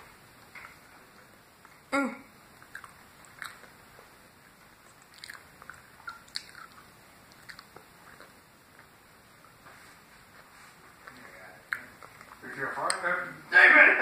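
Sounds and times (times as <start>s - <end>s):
mouth clicks and smacks: 2.6s - 4.1s, 4.8s - 8.9s, 11.0s - 13.0s
person chewing brownie: 2.6s - 9.0s, 11.0s - 12.4s.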